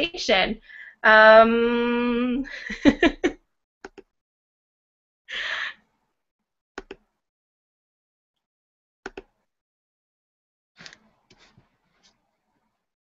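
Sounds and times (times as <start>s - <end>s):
woman's voice: 0.0s - 3.2s
woman's breathy exhale: 5.3s - 5.8s.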